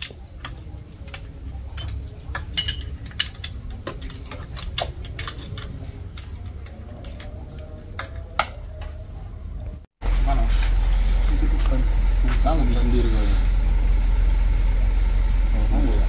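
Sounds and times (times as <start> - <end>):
wrenches clinking on metal: 0.0 - 8.8
low steady rumble: 9.4 - 16.0.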